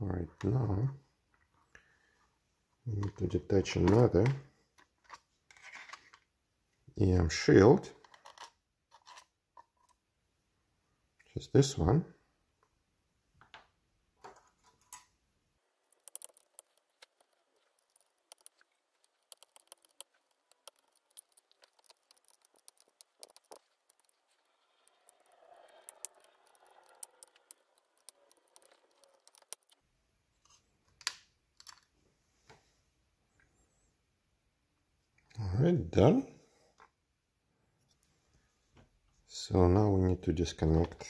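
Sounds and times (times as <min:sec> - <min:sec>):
small clicks and ticks: 0:15.7 - 0:29.8.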